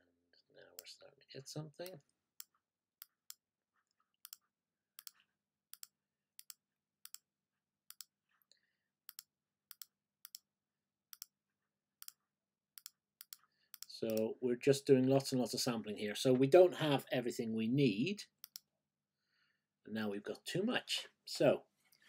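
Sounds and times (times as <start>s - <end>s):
computer mouse clicking: 5.0s - 7.2s, 7.9s - 8.1s, 9.1s - 10.4s, 11.1s - 11.3s, 12.8s - 14.3s, 18.4s - 18.6s.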